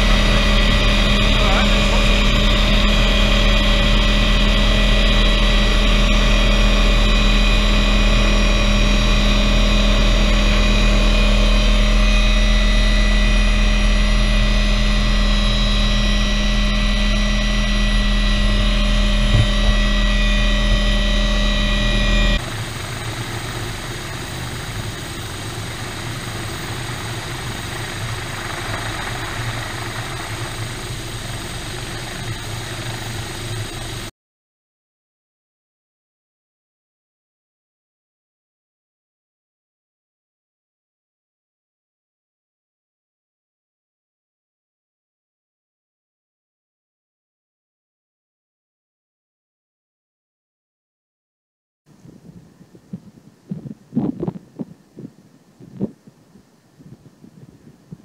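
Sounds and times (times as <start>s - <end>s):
helicopter cabin drone: 0.0s - 34.1s
helicopter rotor beat outside: 0.0s - 34.1s.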